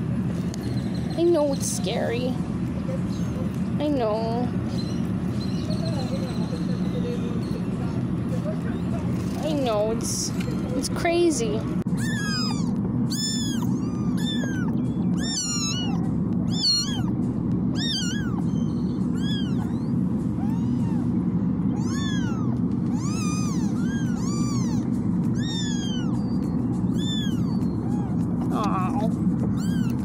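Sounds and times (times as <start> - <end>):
steady low hum: 0.0 - 30.0
kittens meowing: 11.9 - 30.0.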